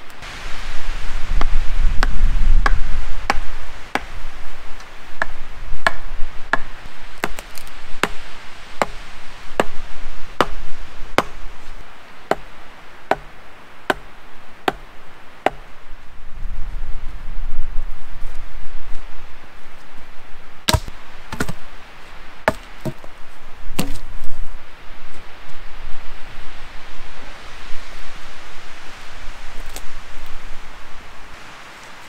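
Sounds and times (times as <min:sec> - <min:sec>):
axe chopping wood: 0:05.2 - 0:08.2, 0:11.2 - 0:11.4, 0:13.1 - 0:13.3, 0:20.7 - 0:21.6, 0:22.5 - 0:23.1, 0:23.8 - 0:24.0.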